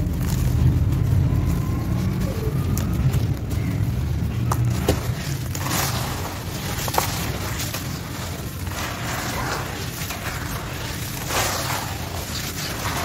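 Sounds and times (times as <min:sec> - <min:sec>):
hands crumbling dry cement chunks: 0:00.0 - 0:01.6, 0:02.7 - 0:13.0
low rumble: 0:00.0 - 0:13.0
grit and powder pouring: 0:04.6 - 0:13.0.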